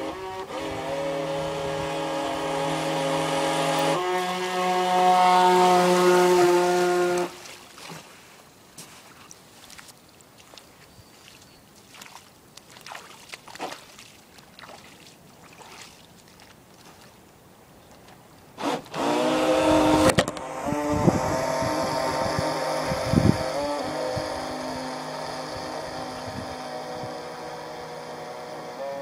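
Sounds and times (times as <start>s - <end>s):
small motor whining: 0.0s - 7.4s, 18.6s - 29.0s.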